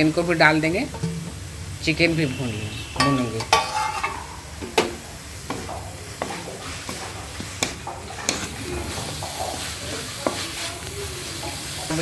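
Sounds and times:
vegetables sizzling in a pan: 0.0s - 12.0s
wooden spatula scraping and knocking pan: 3.0s - 12.0s.

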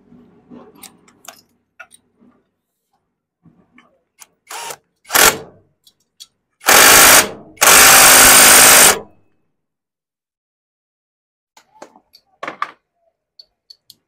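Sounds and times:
power tool spinning a socket: 4.5s - 5.4s, 6.6s - 9.0s.

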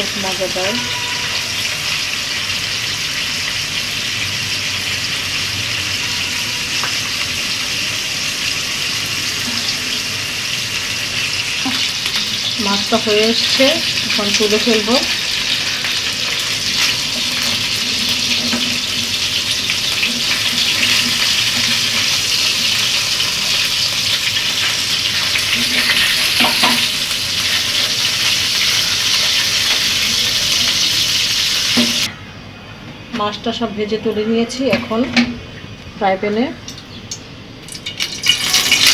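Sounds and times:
fish sizzling in hot oil: 0.0s - 32.1s, 36.8s - 38.9s.

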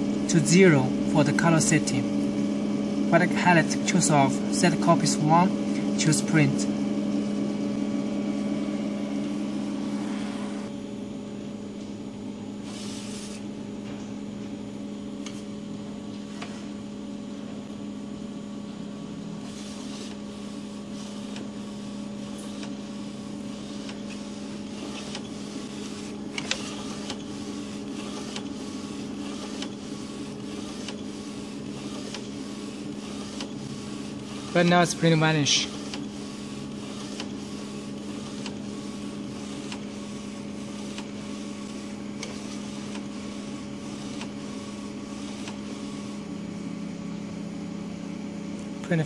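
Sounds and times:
printer mechanical hum: 0.0s - 49.0s
print carriage swishing: 19.4s - 46.2s.

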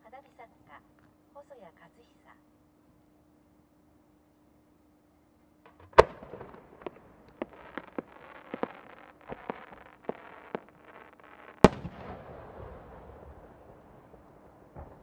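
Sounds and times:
small sharp firework pops: 5.6s - 12.3s, 14.2s - 15.0s
firework launch bang: 5.7s - 13.3s.

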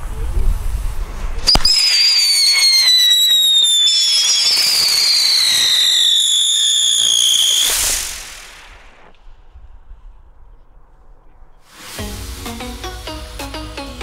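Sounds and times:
firework pop: 1.4s - 2.0s
shrill falling whistles: 1.5s - 9.1s.

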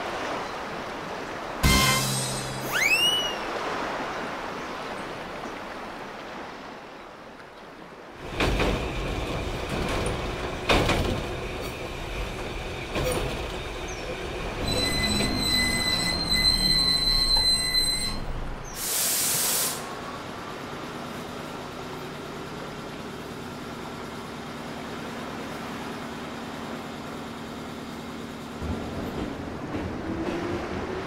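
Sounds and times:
brake squeal: 1.7s - 3.5s, 12.6s - 18.9s
clacks over rail joints: 8.2s - 17.6s, 28.4s - 31.0s
train rumble: 8.2s - 31.0s
air hiss: 18.7s - 20.0s.

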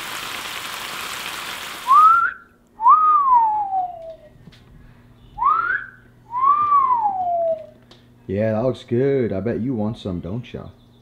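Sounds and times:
fish sizzling in frying pan: 0.0s - 2.0s
person whistling: 1.9s - 4.3s, 5.4s - 7.8s.

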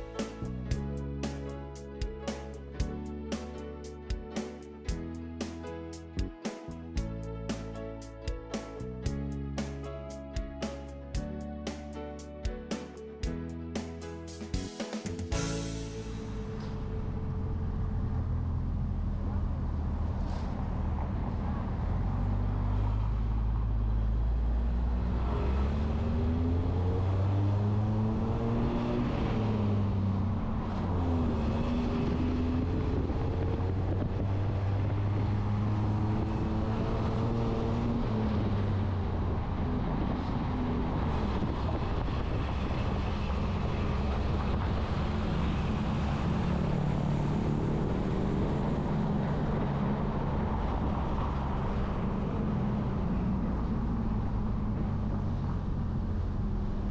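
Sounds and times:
vehicle engines accelerating: 0.0s - 56.9s.

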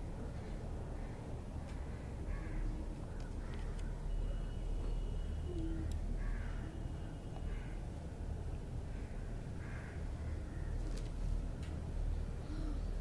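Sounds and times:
crows cawing: 1.9s - 3.8s, 6.2s - 6.8s, 7.5s - 7.8s, 8.9s - 10.8s.

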